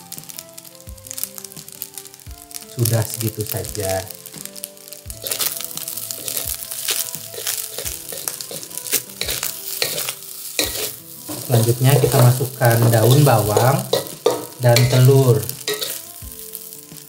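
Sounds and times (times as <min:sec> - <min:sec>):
rice sizzling in a wok: 0:00.0 - 0:17.0
spatula scraping a pan: 0:04.8 - 0:17.0.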